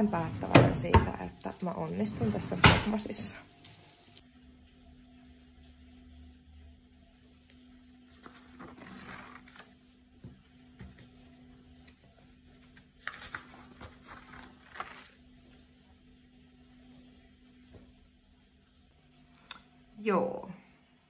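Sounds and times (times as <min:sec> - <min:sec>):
faint steady hum: 0:00.0 - 0:21.0
paper pages rustling: 0:08.0 - 0:15.7.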